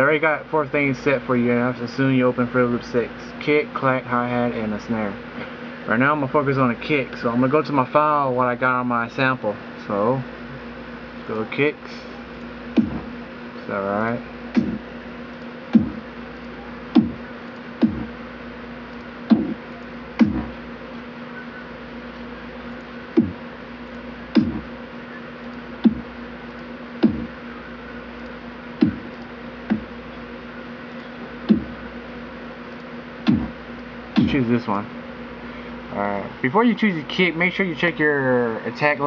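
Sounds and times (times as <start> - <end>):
steady low hum: 0.0 - 39.0
kick drum thumps: 12.8 - 13.1, 14.5 - 14.8, 15.7 - 16.1, 16.9 - 18.2, 19.3 - 19.6, 20.2 - 20.6, 23.2 - 23.4, 24.3 - 24.7, 25.8 - 26.1, 27.0 - 27.4, 28.8 - 29.1, 29.7 - 30.0, 31.5 - 31.8, 33.2 - 33.6, 34.2 - 34.4.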